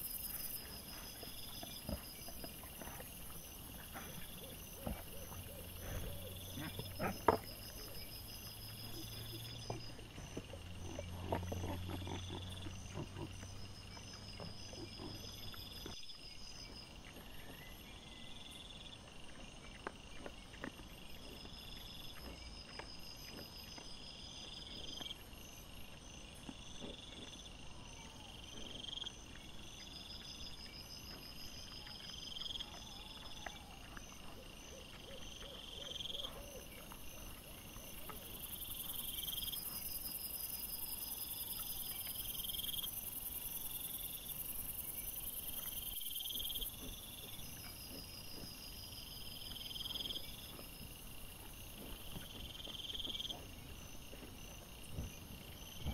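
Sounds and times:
night insects chirping: 0.0 - 55.9
boar grunts: 0.3 - 16.0.

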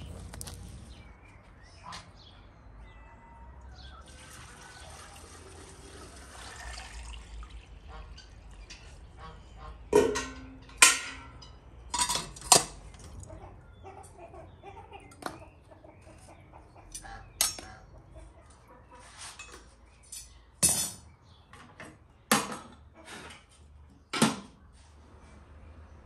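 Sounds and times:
chickens clucking: 7.6 - 20.0
metal clanks and clinks: 9.9 - 12.9, 16.9 - 17.8, 19.4 - 21.1.

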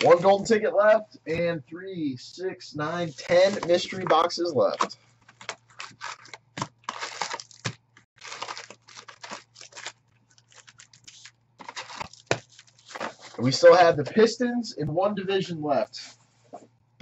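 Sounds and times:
foil packs crinkling: 4.7 - 13.4.

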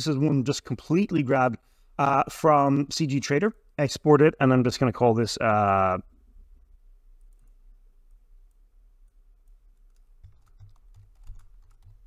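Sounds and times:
typing on keyboard: 9.4 - 12.0.

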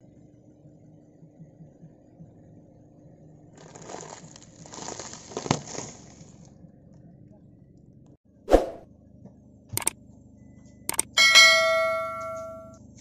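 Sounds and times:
tyre crushing plastic packets: 3.6 - 6.5.

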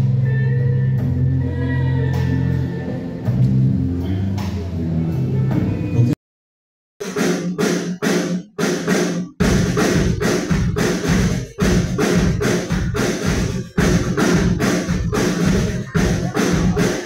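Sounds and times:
deep bass: 0.0 - 6.2
music with steady beat: 7.0 - 17.0.

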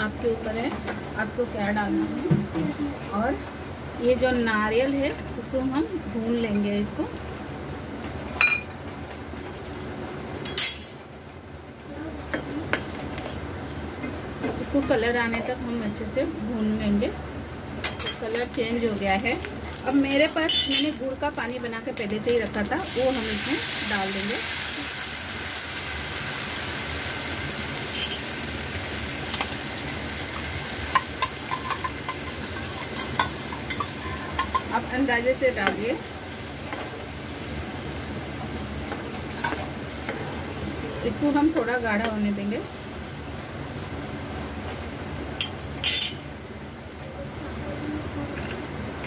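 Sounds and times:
metal utensils clinking: 30.9 - 34.8, 45.4 - 46.2
utensils clattering: 31.2 - 34.8.

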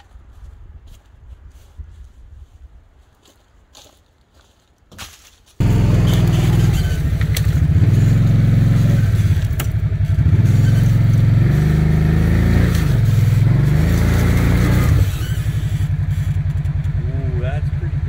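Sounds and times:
vehicle engine running: 5.6 - 18.0.

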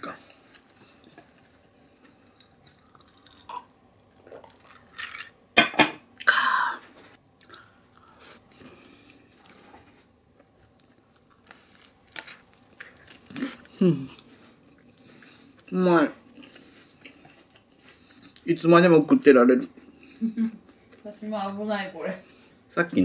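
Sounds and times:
chewing: 0.2 - 5.3, 7.4 - 18.5.

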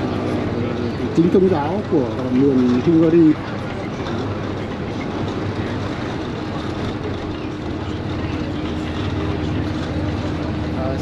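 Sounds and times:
bus engine drone: 0.0 - 11.0
road and tyre noise: 0.0 - 11.0.

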